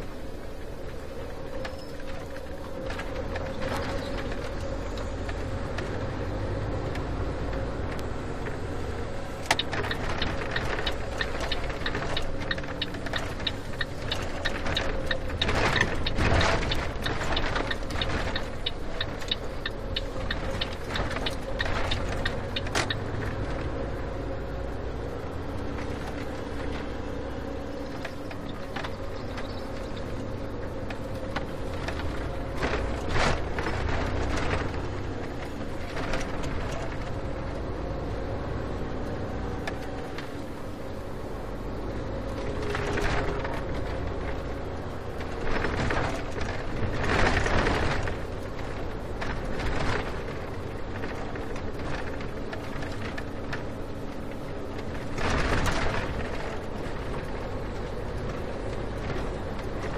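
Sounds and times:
car engine and road rumble: 0.0s - 59.9s
quick evenly spaced clicks: 9.4s - 23.1s.

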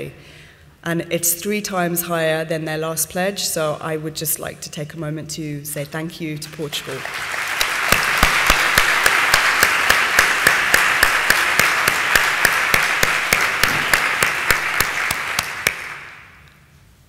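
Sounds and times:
close hands clapping distinctly: 6.5s - 16.4s
audience applauding: 6.6s - 16.4s.

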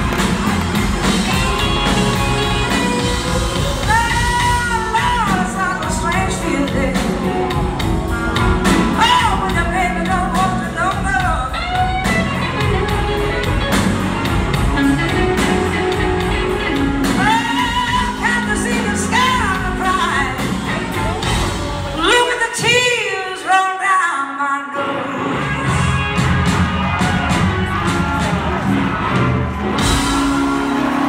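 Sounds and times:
slide guitar: 0.0s - 22.2s
upright bass: 0.0s - 22.3s
drums: 0.0s - 24.0s, 24.7s - 31.0s.

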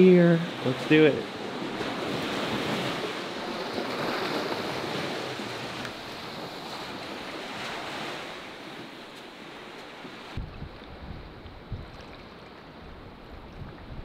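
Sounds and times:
small waves on water: 0.0s - 14.0s
steady breeze: 0.0s - 14.0s.

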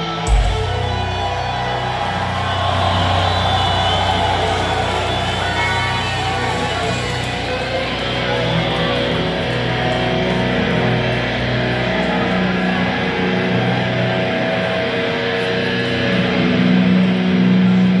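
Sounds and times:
electric guitars ringing notes: 0.0s - 18.0s
live heavy metal band: 0.0s - 18.0s.

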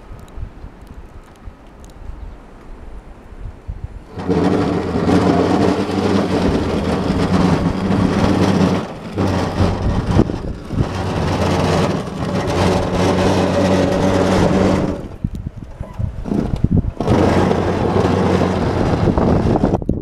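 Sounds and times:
electric tractor drive humming: 4.1s - 19.8s.

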